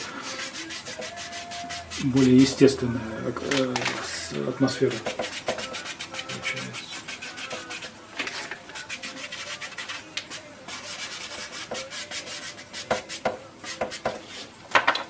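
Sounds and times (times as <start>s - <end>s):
brush scrubbing canvas: 0.0s - 2.7s, 4.8s - 8.0s, 8.7s - 14.5s
brush tapping: 0.2s - 2.8s, 4.7s - 14.3s.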